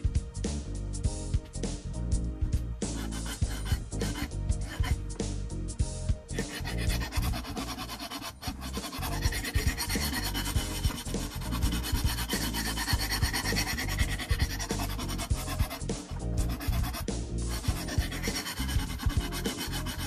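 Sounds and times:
hone scraping knife edge: 2.8s - 5.0s, 6.3s - 20.0s.

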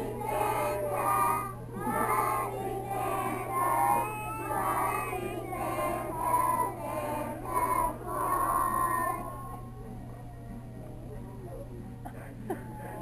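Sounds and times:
children singing together: 0.0s - 9.6s.

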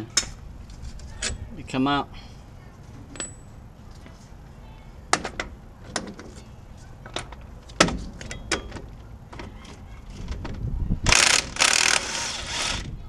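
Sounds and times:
metal tools clinking and knocking: 3.1s - 3.5s.

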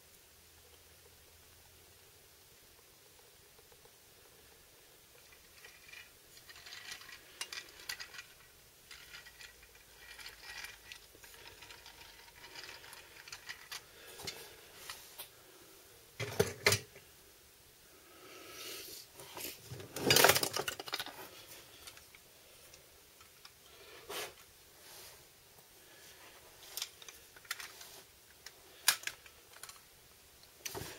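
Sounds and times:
toy truck wheels rolling: 5.1s - 15.0s, 19.4s - 21.2s, 26.6s - 29.9s
light clicks of toy parts: 26.6s - 30.9s.

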